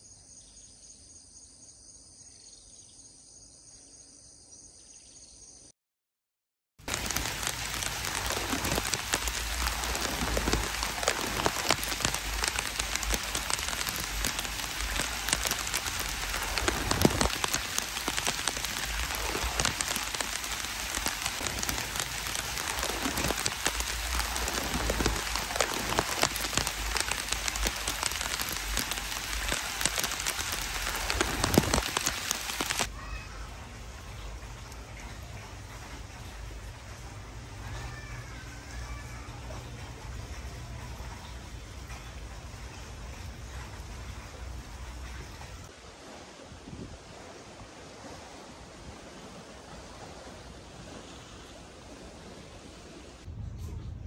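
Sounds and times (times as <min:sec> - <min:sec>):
faint insects chirring: 0:00.0 - 0:05.7
patter of falling water drops: 0:06.8 - 0:46.2.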